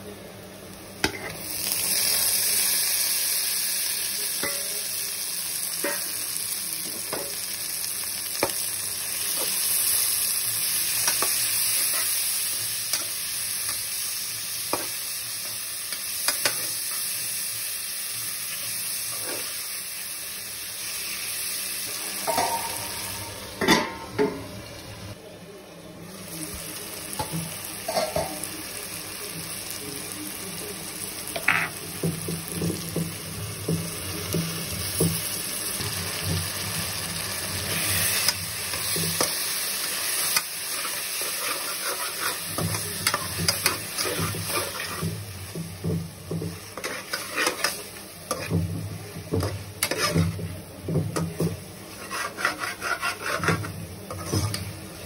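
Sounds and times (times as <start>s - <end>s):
vegetables sizzling in oil: 0.5s - 25.2s, 26.1s - 55.0s
spatula scraping pot: 40.7s - 45.1s, 46.7s - 48.6s, 49.3s - 50.4s, 51.9s - 54.7s.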